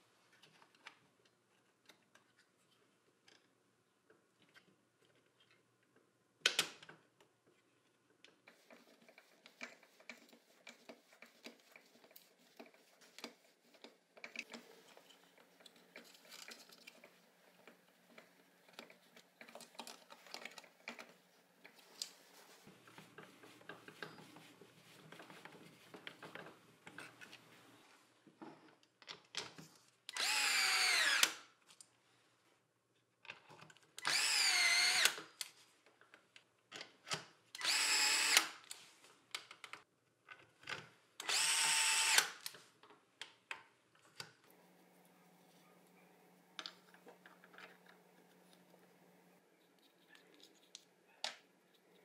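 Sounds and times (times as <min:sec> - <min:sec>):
small metal parts clicking and rattling: 0:14.2 - 0:17.1.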